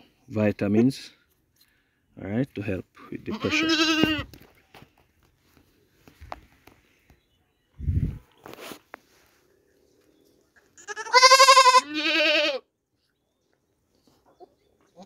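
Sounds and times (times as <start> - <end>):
goat kid bleating: 3.2 - 4.4, 10.8 - 12.7.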